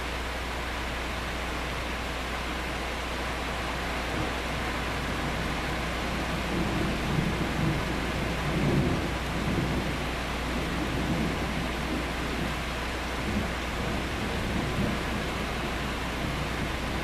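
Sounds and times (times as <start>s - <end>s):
steady rain: 0.0s - 17.0s
thunder rumbling: 4.0s - 17.0s.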